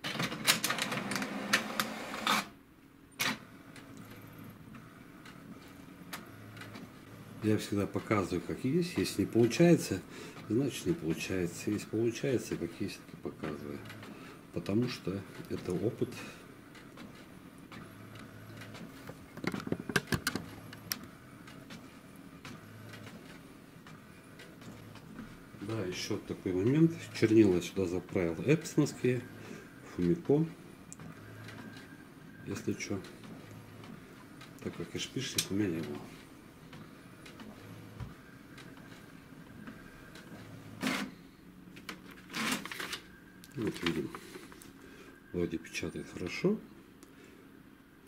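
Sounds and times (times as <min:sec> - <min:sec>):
print mechanism clicks and clacks: 0:00.0 - 0:02.5, 0:03.2 - 0:41.1
printer motor hum: 0:00.0 - 0:02.6, 0:03.2 - 0:48.0
paper rustling: 0:41.8 - 0:44.5.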